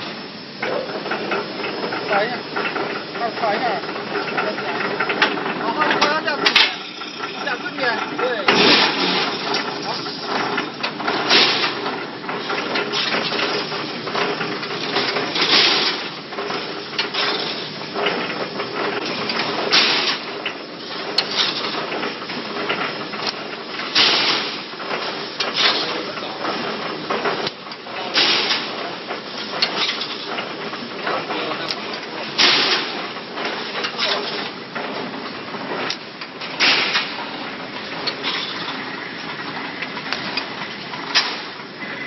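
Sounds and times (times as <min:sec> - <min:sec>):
welding machine clattering: 0:00.0 - 0:42.0
loud metallic clank: 0:06.2 - 0:12.0, 0:36.5 - 0:37.2.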